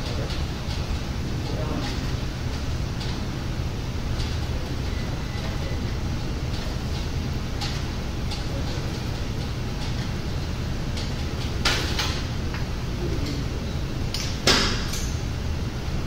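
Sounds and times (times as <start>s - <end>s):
gym room hum: 0.0s - 16.0s
cable machine clanks: 4.1s - 13.4s.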